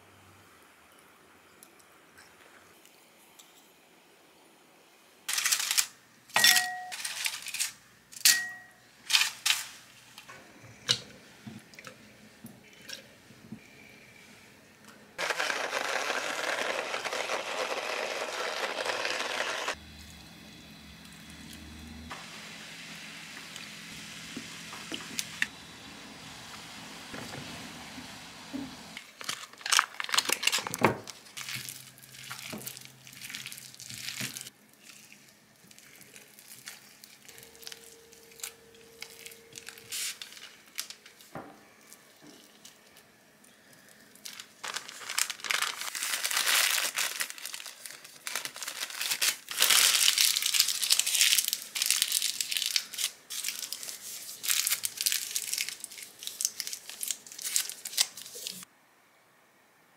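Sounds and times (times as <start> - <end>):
material crinkling and rustling: 29.0 - 43.0, 43.8 - 58.7.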